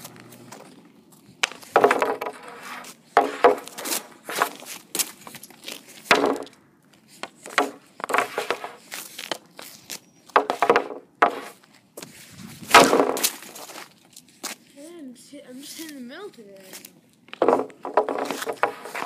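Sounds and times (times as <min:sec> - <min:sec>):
puck and stick hitting board: 0:01.4 - 0:04.7, 0:06.1 - 0:06.6, 0:07.2 - 0:09.4, 0:10.3 - 0:11.6, 0:12.7 - 0:13.6, 0:17.4 - 0:19.0.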